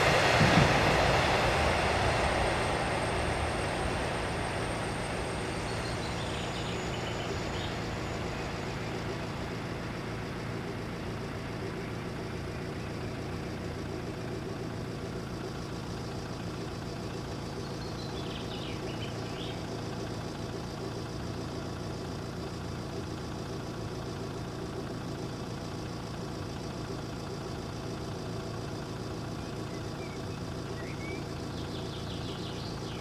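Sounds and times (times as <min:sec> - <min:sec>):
engine idling: 0:00.0 - 0:33.0
bird chirping: 0:05.4 - 0:09.3, 0:29.4 - 0:33.0.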